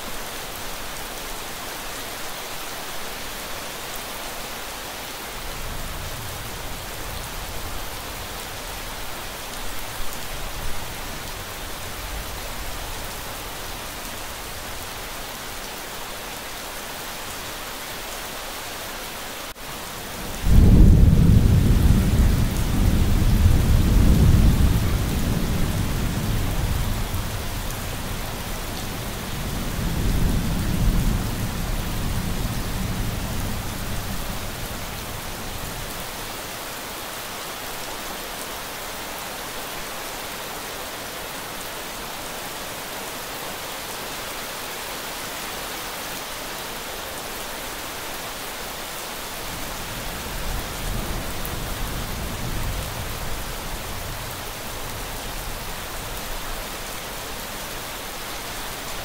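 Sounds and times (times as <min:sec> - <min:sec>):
steady rain: 0:00.0 - 0:59.0
thunder rumble: 0:20.2 - 0:34.6.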